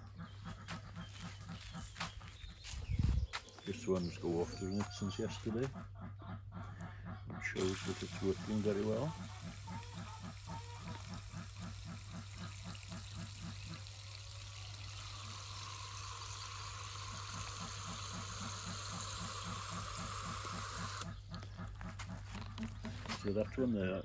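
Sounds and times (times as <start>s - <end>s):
tap water running: 7.6s - 21.1s.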